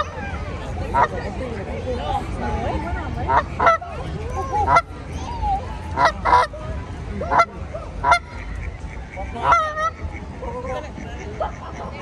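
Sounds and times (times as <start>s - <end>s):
goose honking: 7.3s - 10.2s.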